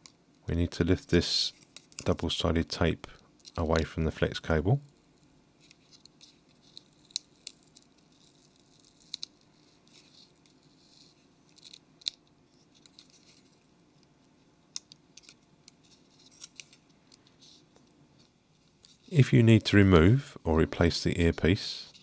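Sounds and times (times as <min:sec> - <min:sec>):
tape peeling: 0:05.6 - 0:13.6, 0:14.7 - 0:16.8.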